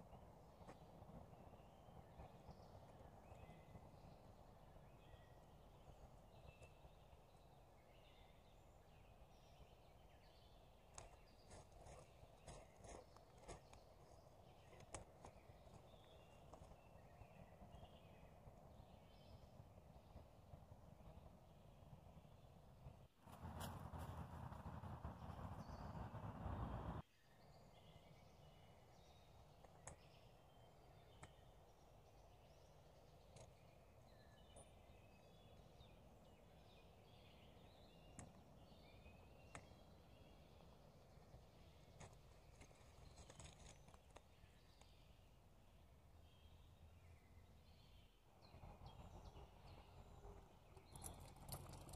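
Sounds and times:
distant birdsong chirps: 0:00.0 - 0:51.9
low background rumble: 0:12.1 - 0:27.0.

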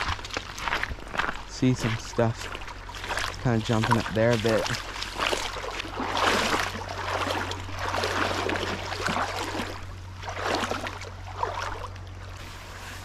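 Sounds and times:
low hum: 0:00.0 - 0:13.0
wading steps in water: 0:00.0 - 0:13.0.

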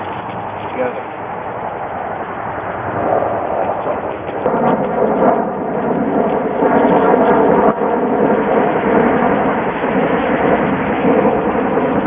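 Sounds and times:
road traffic passing: 0:00.0 - 0:06.6.

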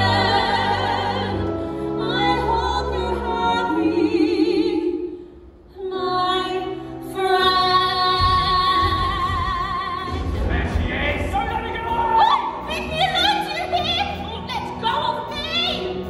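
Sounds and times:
woman singing with vibrato: 0:05.7 - 0:10.4.

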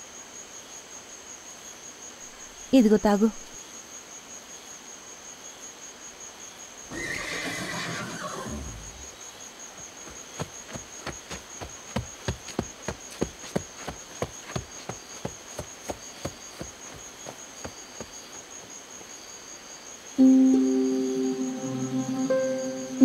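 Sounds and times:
crickets chirring: 0:00.0 - 0:23.0
horse hooves clip-clopping: 0:09.0 - 0:19.2.

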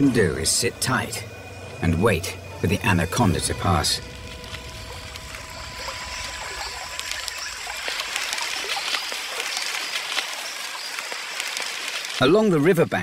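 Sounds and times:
thin steady tones: 0:00.0 - 0:12.5
faint chirps and clicks: 0:04.2 - 0:12.2.

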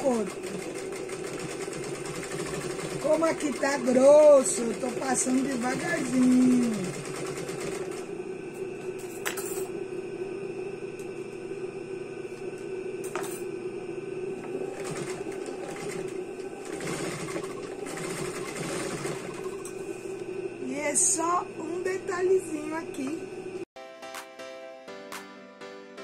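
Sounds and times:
sewing machine stitching: 0:00.0 - 0:08.1, 0:14.4 - 0:19.7.

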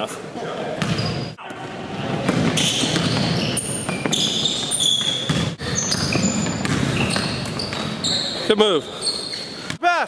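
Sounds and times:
basketball bouncing: 0:00.8 - 0:01.2, 0:02.2 - 0:08.0
sneakers squeaking on hardwood: 0:00.8 - 0:01.4, 0:02.2 - 0:09.8.

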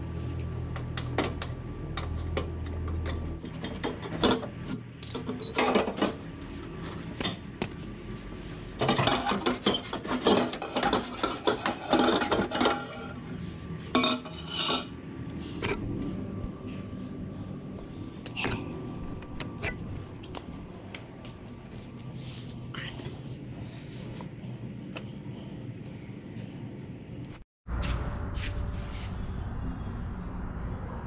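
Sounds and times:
metal exhaust pipe clanking and scraping: 0:02.0 - 0:07.5, 0:08.7 - 0:16.9.

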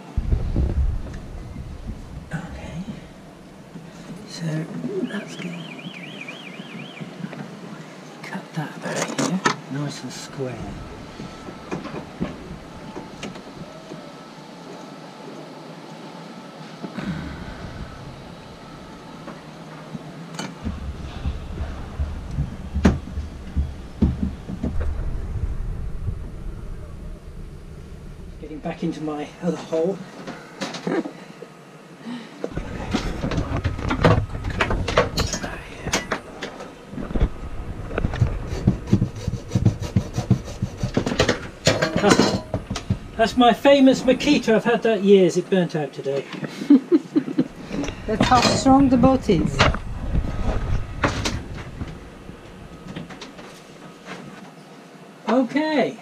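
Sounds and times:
steady background noise: 0:00.0 - 0:56.0
dull thumps: 0:00.2 - 0:04.2, 0:20.6 - 0:28.4
loud knock: 0:20.6 - 0:26.7.

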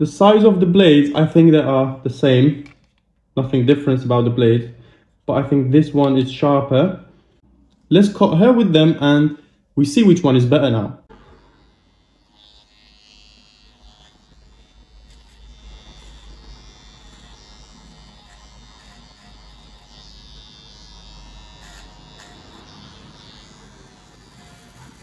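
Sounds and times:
hair trimmer buzzing: 0:11.1 - 0:25.0.

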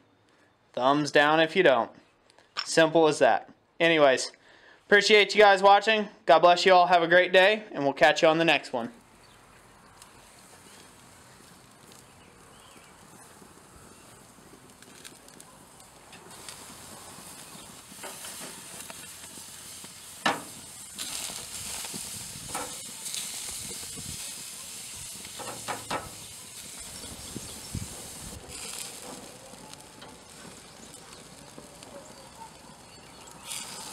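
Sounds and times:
meat sizzling on a grill: 0:09.0 - 0:33.9
metal turner knocking on grate: 0:25.4 - 0:26.2.

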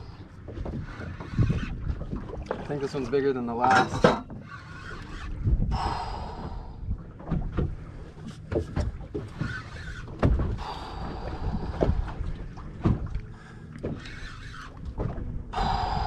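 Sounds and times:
wind rumble on microphone: 0:00.0 - 0:03.0, 0:05.0 - 0:09.4, 0:10.0 - 0:13.3, 0:14.8 - 0:16.0
water slapping against boat hull: 0:00.0 - 0:16.0.

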